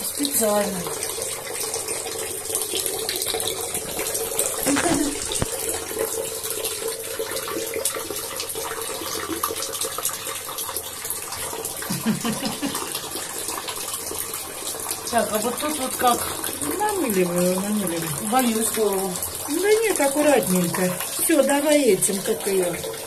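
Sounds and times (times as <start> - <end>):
tap water running into bathtub: 0.0 - 23.0.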